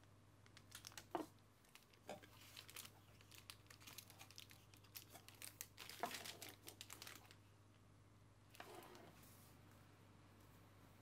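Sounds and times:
plastic piping bag crinkling: 0.4 - 7.5.

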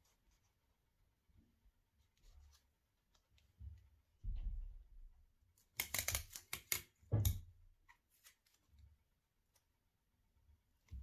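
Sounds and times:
paper being folded and creased: 7.8 - 9.8.

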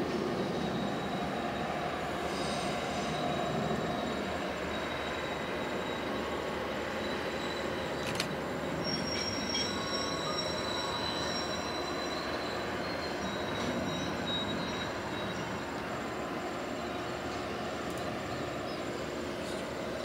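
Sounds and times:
train wheels rumbling on rail: 0.0 - 20.0
high-pitched wheel squeal: 8.6 - 15.7.

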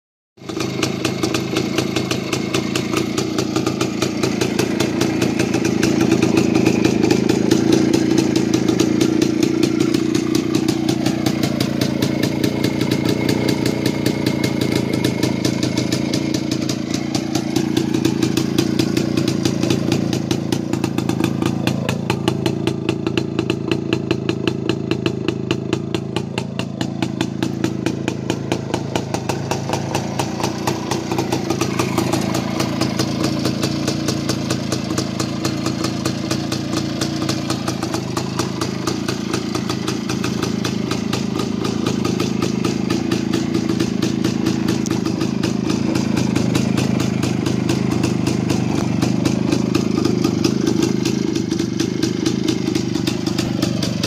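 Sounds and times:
two-stroke engine idling: 0.4 - 54.0.

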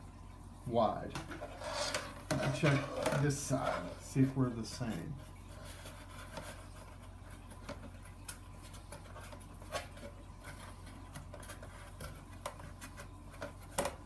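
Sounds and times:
board panels rubbing and tapping: 1.2 - 4.1.

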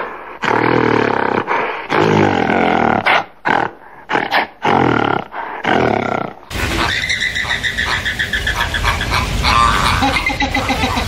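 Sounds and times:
deep roaring animal calls: 4.6 - 11.0
pulsing high-pitched animal call: 6.5 - 11.0.

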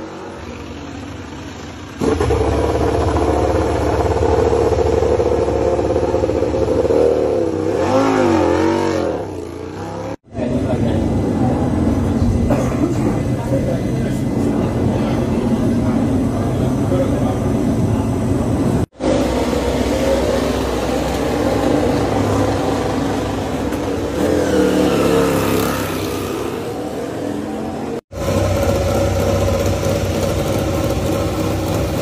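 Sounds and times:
racing motorcycle engine revving: 1.9 - 12.2, 19.0 - 32.0.

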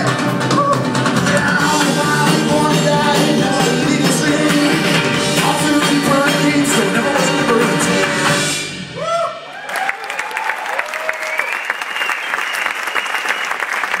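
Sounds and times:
live band playing: 0.0 - 9.5
audience applause and cheering: 8.9 - 14.0
long high whistle: 11.1 - 13.6.

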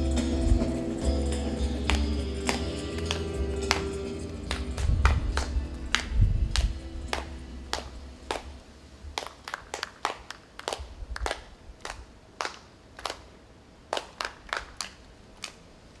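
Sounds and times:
faint low rumble: 0.0 - 9.2
single hand claps: 1.7 - 8.5, 9.2 - 13.3.

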